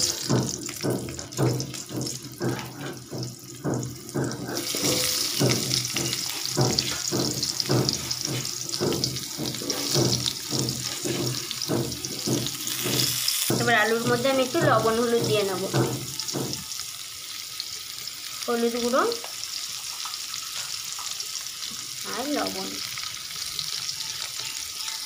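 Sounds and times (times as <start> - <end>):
potato chunks knocking into pan: 0.0 - 16.7
oil sizzling: 0.0 - 25.0.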